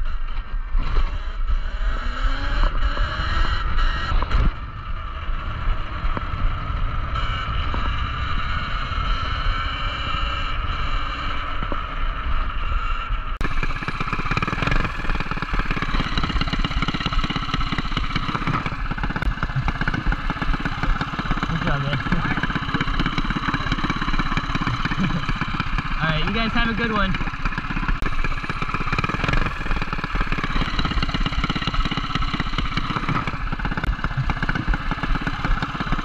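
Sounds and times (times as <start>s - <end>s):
wind rumble on microphone: 2.6s - 13.8s.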